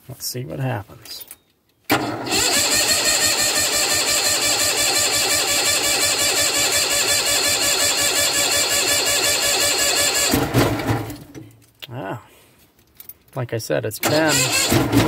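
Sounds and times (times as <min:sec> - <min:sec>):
engine starter cranking: 0:01.9 - 0:11.3, 0:14.0 - 0:15.0.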